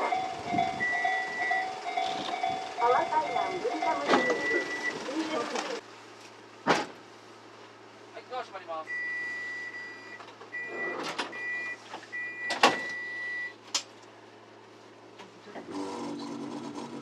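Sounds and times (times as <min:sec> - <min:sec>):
electronic beeper tone: 0:00.0 - 0:05.0
low vehicle hum: 0:00.0 - 0:17.0.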